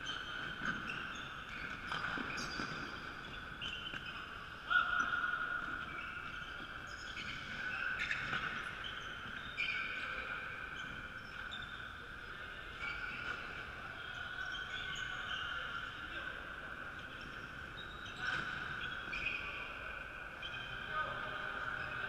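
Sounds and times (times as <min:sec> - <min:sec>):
shoes squeaking on wooden floor: 0:00.0 - 0:04.5.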